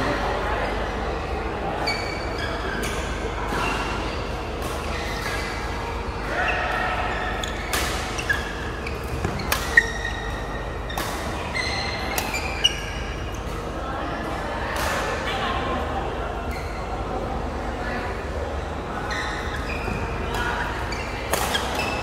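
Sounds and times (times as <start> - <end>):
shoes squeaking on court: 6.5 - 13.7, 19.1 - 22.0.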